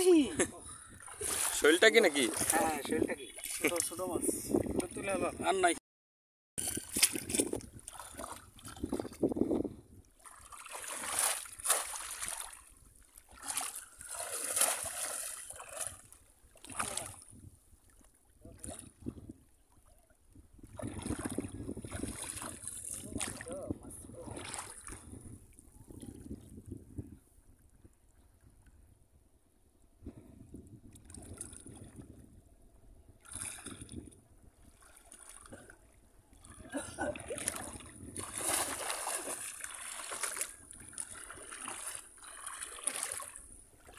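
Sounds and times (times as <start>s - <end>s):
floodwater splashing and sloshing: 0.0s - 5.6s, 6.6s - 26.6s, 30.8s - 32.2s, 33.2s - 43.9s
people wading through water: 0.0s - 5.6s, 6.6s - 9.2s, 10.1s - 26.3s, 33.2s - 43.9s.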